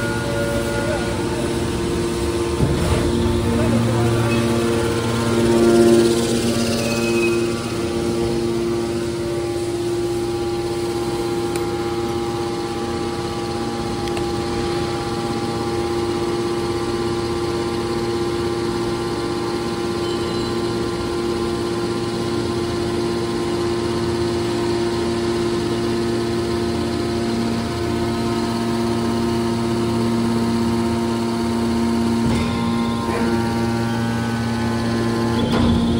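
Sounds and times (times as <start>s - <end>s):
hydraulic motor and pumps humming: 0.0s - 35.9s.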